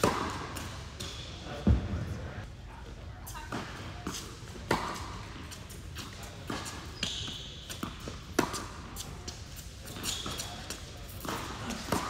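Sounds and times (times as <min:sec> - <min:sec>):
racquet striking tennis ball: 0:00.0 - 0:01.8.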